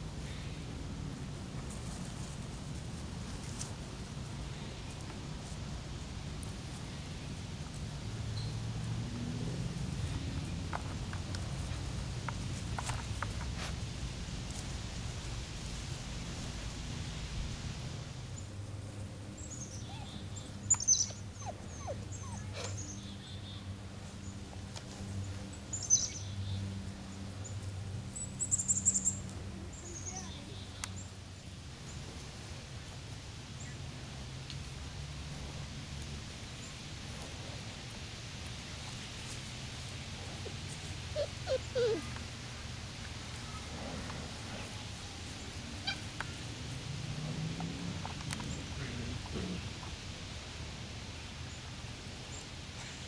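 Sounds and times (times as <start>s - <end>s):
puppies yipping and squeaking: 19.8s - 23.0s, 40.4s - 42.2s, 45.8s - 46.1s.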